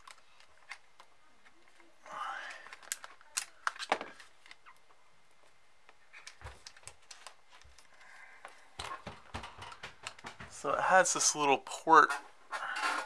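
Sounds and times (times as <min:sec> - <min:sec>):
light taps and dull bumps: 0:08.8 - 0:10.9.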